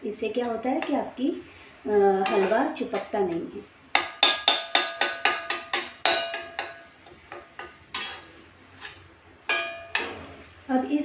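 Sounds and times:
metal spatula clinking in pan: 2.2 - 3.1, 4.0 - 10.2.

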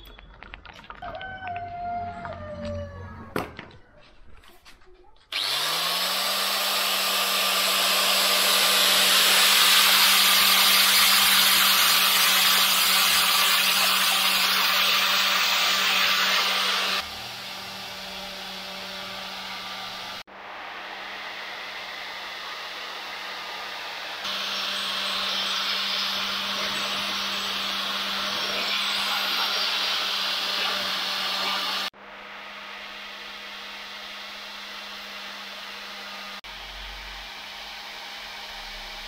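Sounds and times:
angle grinder motor humming: 5.3 - 20.3, 20.9 - 39.0
grinding disc hissing on metal: 5.4 - 20.3, 20.9 - 31.9.

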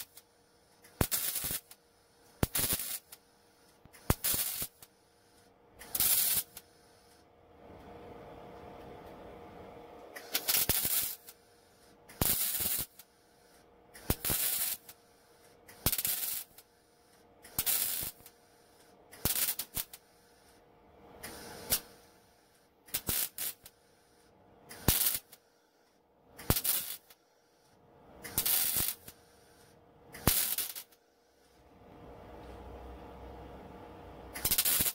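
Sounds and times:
welding arc crackling: 0.0 - 1.8, 2.4 - 3.2, 3.9 - 4.9, 5.8 - 6.7, 10.2 - 11.4, 12.1 - 13.1, 14.0 - 15.0, 15.7 - 16.7, 17.4 - 18.4, 19.1 - 20.1, 21.2 - 23.7, 24.7 - 25.4, 26.4 - 27.2, 28.2 - 29.2, 30.2 - 31.0, 34.4 - 34.9
welder low hum: 0.0 - 25.8, 26.4 - 34.9.

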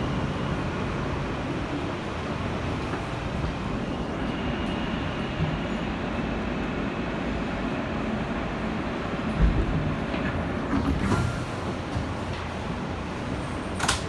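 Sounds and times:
faint high whine: 0.0 - 9.0
subway wheels rumbling on rail: 0.0 - 14.0.

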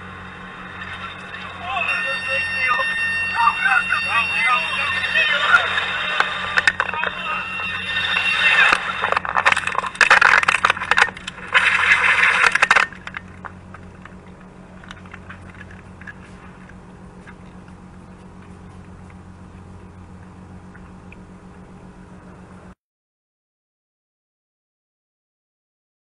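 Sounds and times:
helicopter crashing through trees: 0.0 - 16.2
low steady hum: 0.0 - 22.8.

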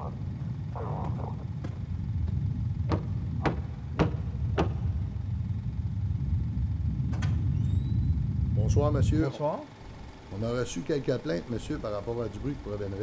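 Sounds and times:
steady low rumble: 0.0 - 13.0
knocks on a door: 2.9 - 4.8.

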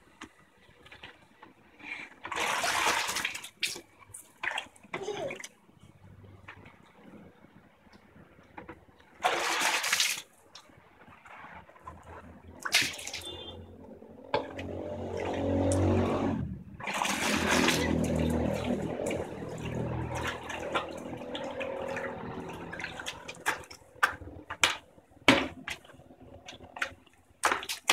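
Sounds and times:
water pouring into a bucket: 2.2 - 3.9, 9.2 - 10.3, 14.3 - 24.4
water dripping: 14.3 - 16.2, 17.2 - 24.8.

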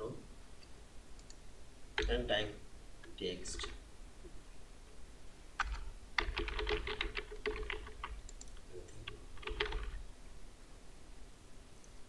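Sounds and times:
typing on keyboard: 3.5 - 3.8, 5.6 - 10.0.

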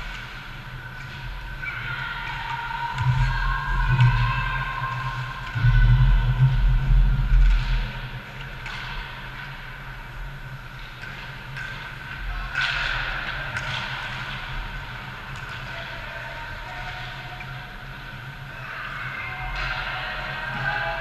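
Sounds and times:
loud low rumble: 3.0 - 8.3
hockey stick or puck clacks: 7.4 - 9.7, 10.7 - 14.7.

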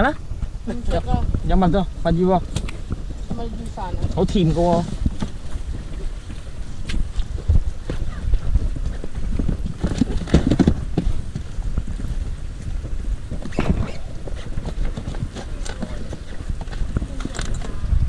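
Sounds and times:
wind rumble on microphone: 0.0 - 18.0
hollow knocks and clatter of gear: 6.9 - 17.8.

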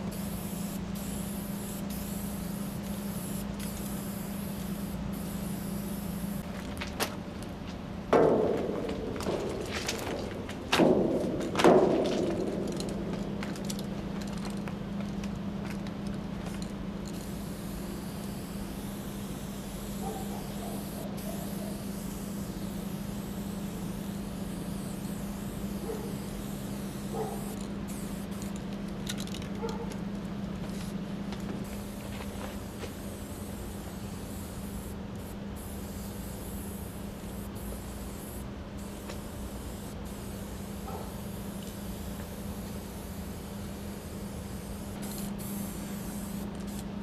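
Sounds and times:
spray paint hissing from can: 0.0 - 6.5, 16.4 - 29.6, 31.6 - 47.0
steady low hum: 0.0 - 47.0.

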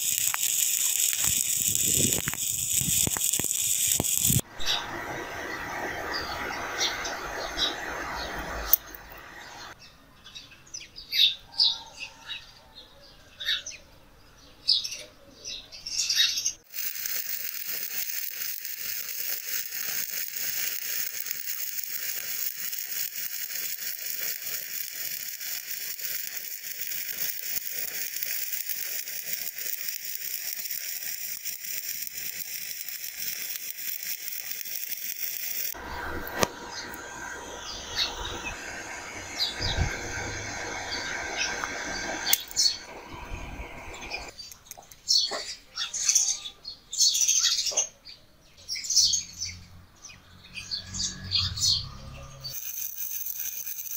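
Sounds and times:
welding arc crackling and hissing: 0.0 - 9.8, 16.6 - 44.4, 52.4 - 53.9.

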